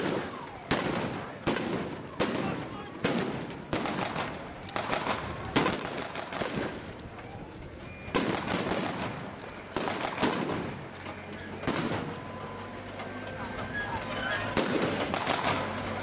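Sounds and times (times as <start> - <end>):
blank gunshots with echo: 0.0 - 6.9, 8.1 - 10.9, 11.6 - 12.3, 14.6 - 15.8.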